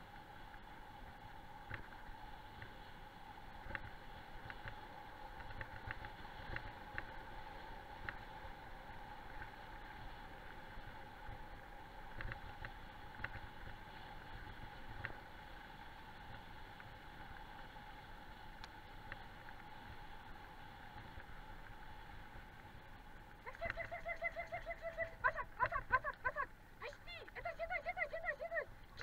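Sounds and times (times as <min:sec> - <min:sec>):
dogs yelping: 0:23.5 - 0:26.5.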